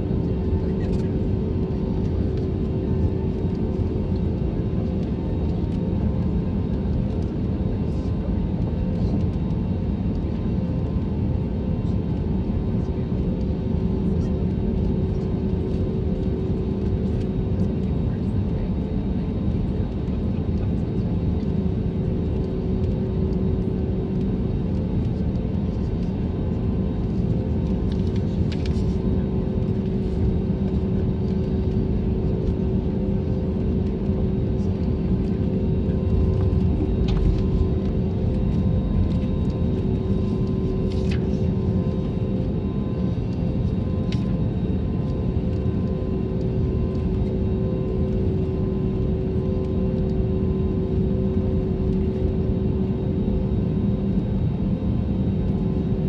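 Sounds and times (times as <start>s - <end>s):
airliner rolling rumble: 0.0s - 56.0s
jet engine hum: 0.0s - 56.0s.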